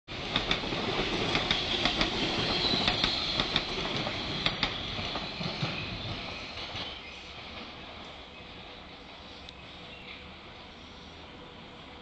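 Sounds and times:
train rushing rumble: 0.1 - 12.0
wheels clacking over rail joints: 0.2 - 8.2.

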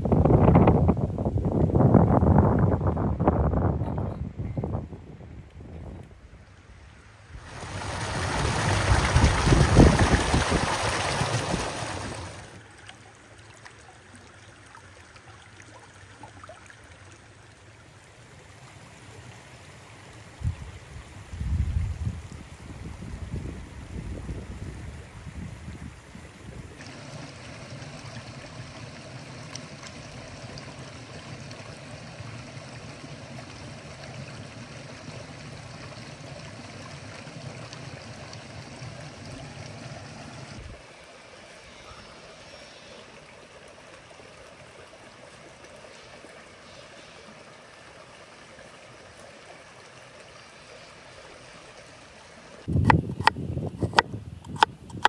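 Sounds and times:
stream water running: 5.6 - 55.0.

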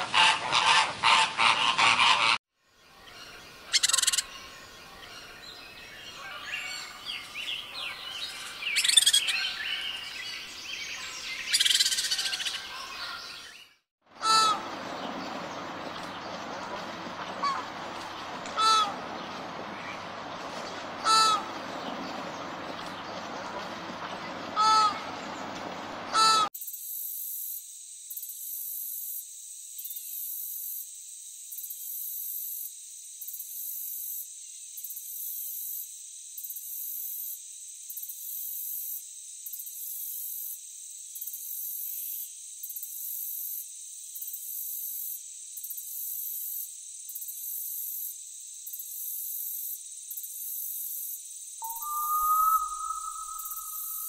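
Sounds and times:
flamingos honking: 0.0 - 2.4, 14.2 - 26.5, 51.6 - 54.0.

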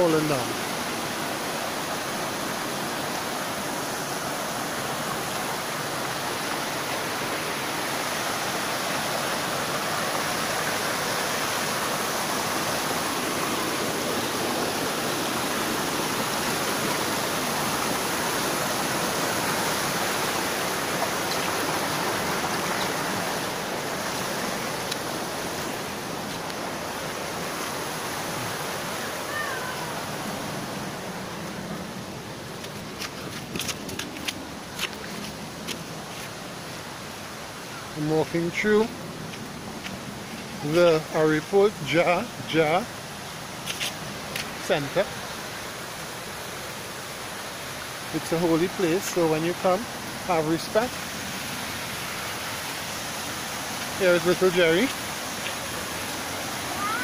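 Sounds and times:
river water rushing over stones: 0.0 - 57.0.

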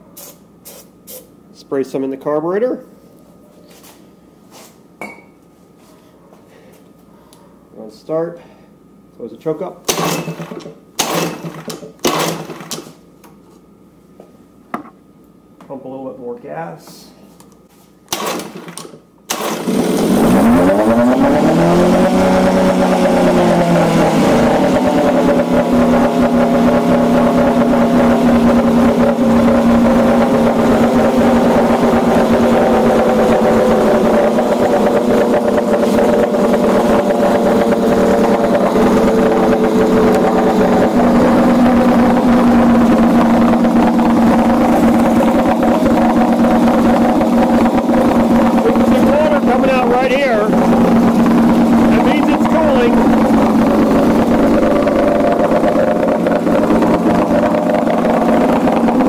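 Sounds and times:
outboard engine running: 19.3 - 59.0
exhaust bubbling under water: 40.1 - 59.0.

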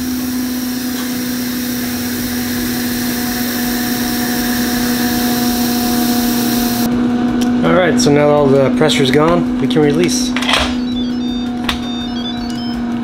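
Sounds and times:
steam hissing from valve: 0.0 - 6.9
steady low hum: 0.0 - 13.0.

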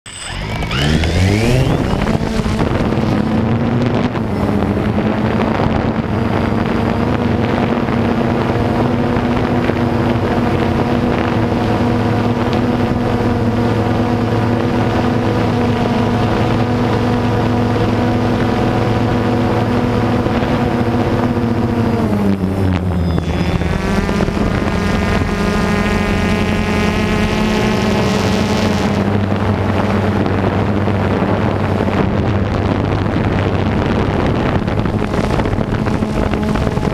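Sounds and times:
quadcopter drone buzzing: 0.0 - 36.9.

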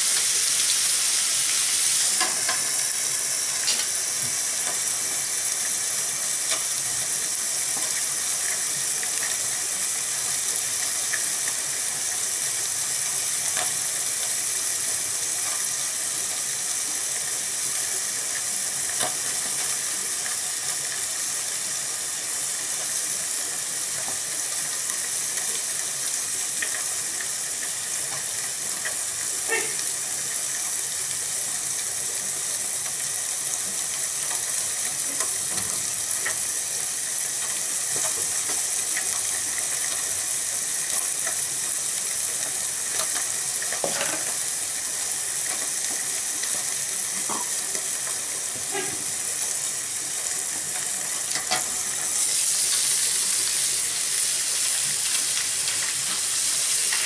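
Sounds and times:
pan sizzling: 0.0 - 57.0
wood fire crackling and popping: 1.9 - 21.7, 22.4 - 57.0.

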